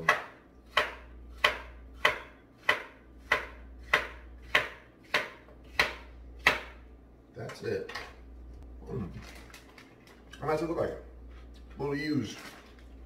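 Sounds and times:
knife chopping on cutting board: 0:00.0 - 0:06.8.

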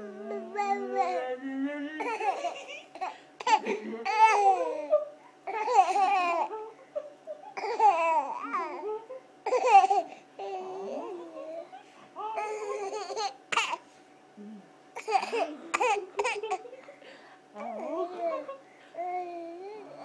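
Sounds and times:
baby babbling: 0:02.0 - 0:06.7, 0:07.6 - 0:11.7
baby laughing: 0:02.0 - 0:08.8, 0:09.4 - 0:10.6, 0:12.4 - 0:13.8, 0:15.0 - 0:16.9.

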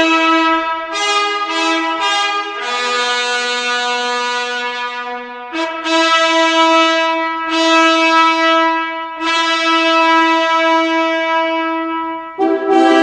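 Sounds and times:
brass fanfare long note: 0:00.0 - 0:13.0.

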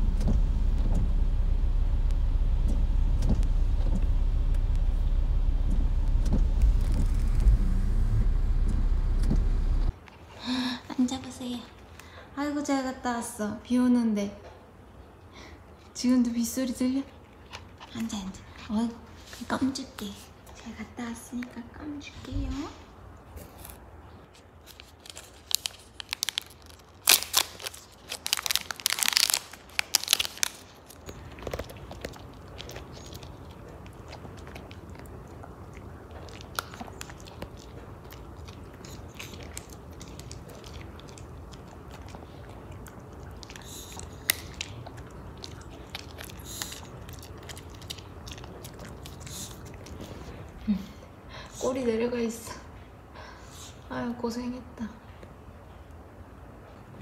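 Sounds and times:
dog crunching a hard chew: 0:23.3 - 0:50.6.

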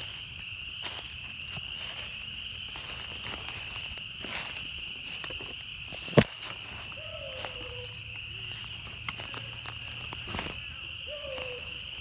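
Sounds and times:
footsteps crunching through leaves: 0:00.0 - 0:12.0
hound baying faintly: 0:07.0 - 0:08.5.

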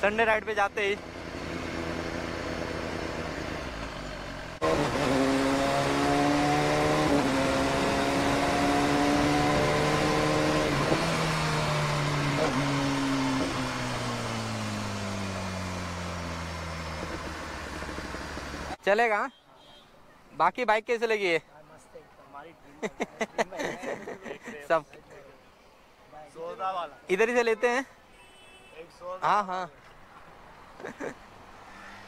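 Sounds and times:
motorcycle engine running: 0:11.2 - 0:18.8.

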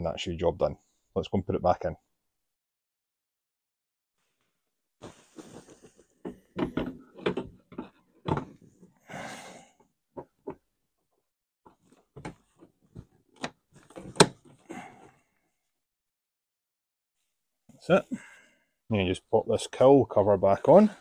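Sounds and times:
plastic knocks and clicks: 0:06.2 - 0:08.5.

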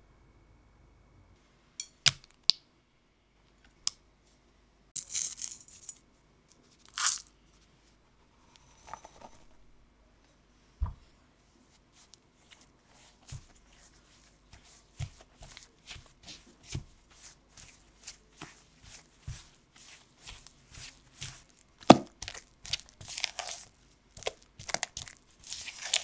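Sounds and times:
soft thump: 0:10.8 - 0:11.0.

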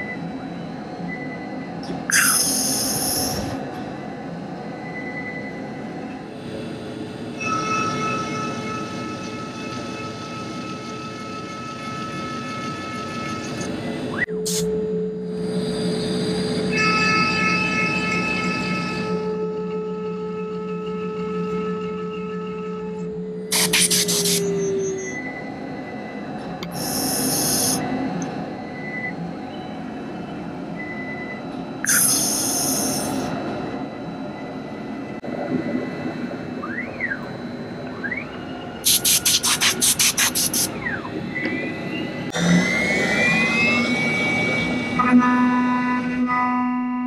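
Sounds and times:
router spindle whine: 0:07.4 - 0:30.0, 0:35.7 - 0:46.2
whirring axis moves: 0:23.5 - 0:29.2, 0:29.9 - 0:45.0.

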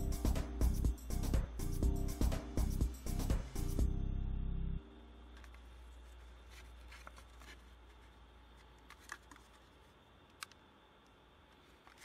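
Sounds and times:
low steady hum: 0:00.0 - 0:12.0
aluminium cans clicking and crinkling: 0:08.6 - 0:10.6.

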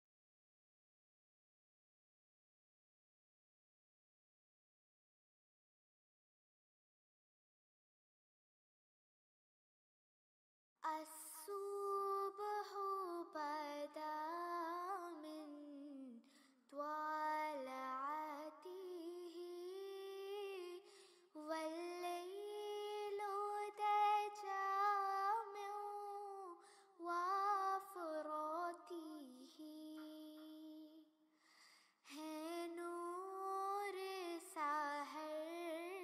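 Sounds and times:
person singing unaccompanied: 0:16.8 - 0:31.0.

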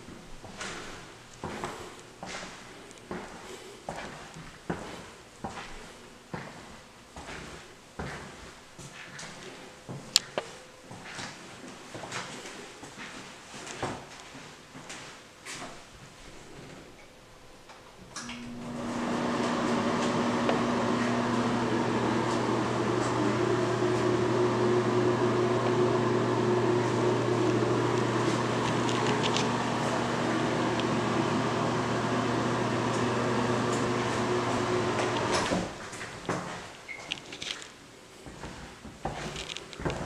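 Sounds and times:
exhaust fan motor hum: 0:17.9 - 0:35.9.

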